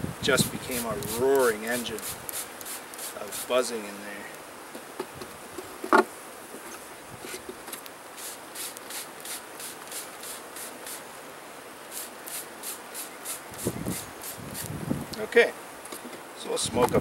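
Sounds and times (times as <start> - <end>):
bellows hissing puffs: 0.4 - 3.6, 8.2 - 11.1, 11.9 - 14.8.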